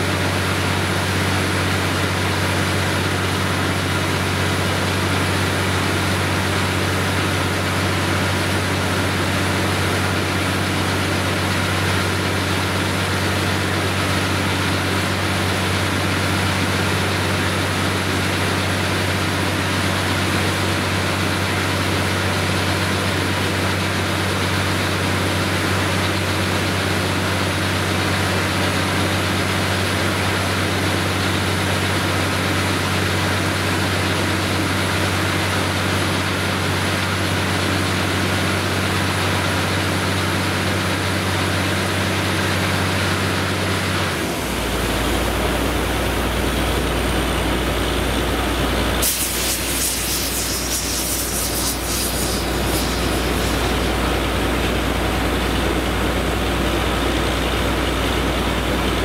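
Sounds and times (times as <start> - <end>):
drilling rig engine drone: 43.6 - 58.8
air compressor rushing noise: 44.0 - 56.4.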